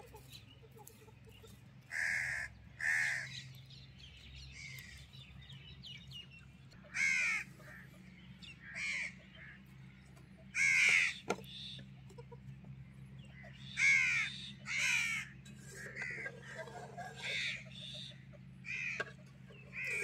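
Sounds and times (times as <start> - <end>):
crows cawing: 1.8 - 3.5, 4.6 - 5.0, 6.8 - 9.8, 10.5 - 11.8, 13.3 - 20.0.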